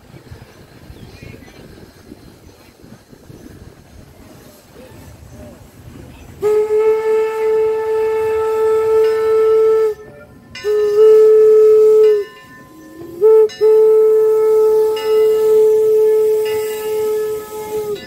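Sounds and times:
steam locomotive whistle: 0:06.4 - 0:18.0.

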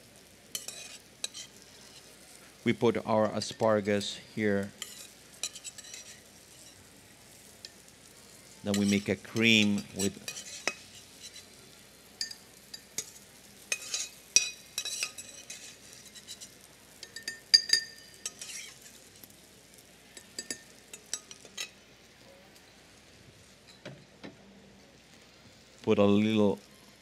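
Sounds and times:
faint oil sizzling: 0:00.0 - 0:27.0
metal spoon scraping a skillet: 0:00.5 - 0:02.6, 0:03.2 - 0:11.6, 0:12.2 - 0:21.8
spoon clinking on ceramic: 0:08.7 - 0:11.4, 0:12.2 - 0:18.8, 0:20.2 - 0:21.8.

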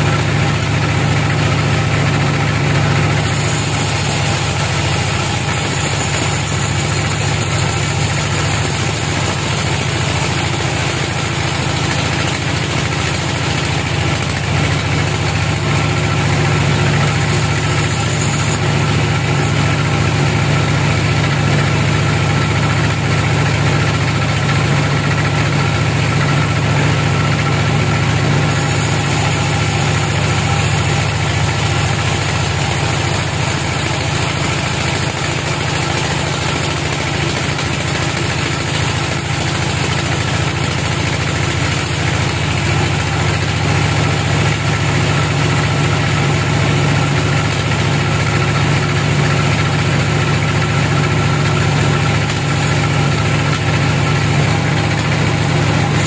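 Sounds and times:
band saw droning: 0:00.0 - 0:56.0
bright saw hiss: 0:03.2 - 0:13.2, 0:28.5 - 0:32.2.

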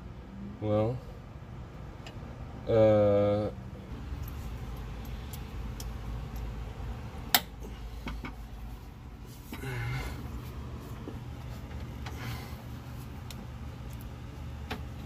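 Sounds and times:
low hum: 0:03.6 - 0:15.0.

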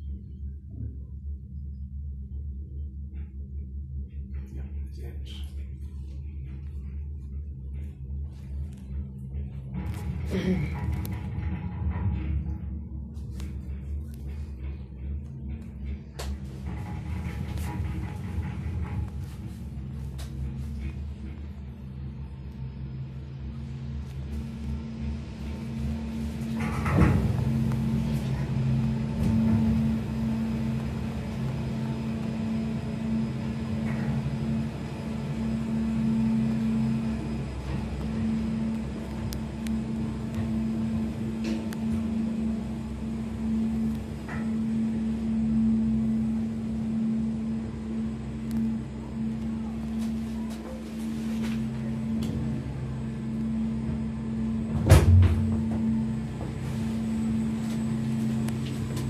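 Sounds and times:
mechanical hum of lift drive: 0:00.0 - 0:59.0
gondola cabin clunk and rattle: 0:00.1 - 0:59.0
loud clunk: 0:54.7 - 0:56.0.

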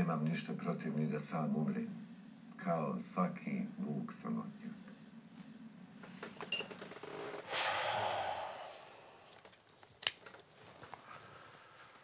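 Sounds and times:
man breathing out heavily: 0:07.5 - 0:09.4.

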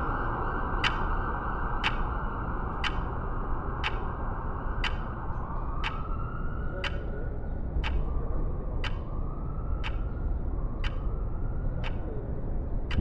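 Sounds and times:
sharp clock-like ticks: 0:00.8 - 0:01.2, 0:01.8 - 0:02.1, 0:02.8 - 0:03.2, 0:03.8 - 0:04.2, 0:04.8 - 0:05.2, 0:05.8 - 0:06.2, 0:06.8 - 0:07.1, 0:07.8 - 0:08.1, 0:08.8 - 0:09.1, 0:09.8 - 0:10.2, 0:10.8 - 0:11.2, 0:11.8 - 0:12.1.

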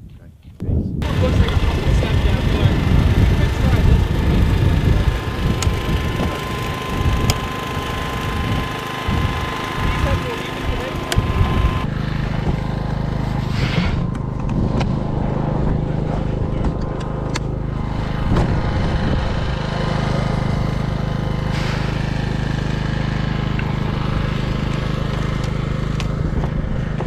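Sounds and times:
engine idling: 0:01.0 - 0:27.0.

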